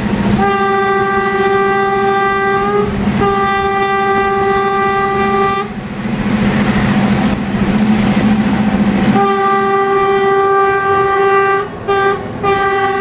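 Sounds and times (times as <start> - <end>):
train rumbling on track: 0.0 - 13.0
train horn blast: 0.4 - 5.8, 9.1 - 13.0.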